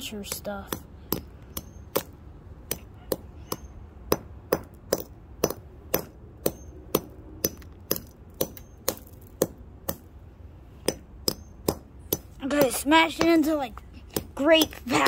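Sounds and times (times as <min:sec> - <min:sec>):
hammer striking crystal: 0:02.7 - 0:10.0, 0:10.9 - 0:12.7.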